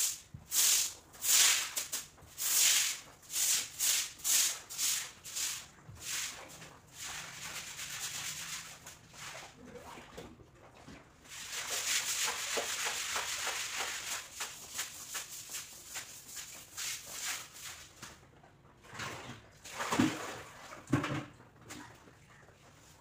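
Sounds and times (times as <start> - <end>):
broom scrubbing wet tiles: 0.0 - 10.1, 11.2 - 18.2.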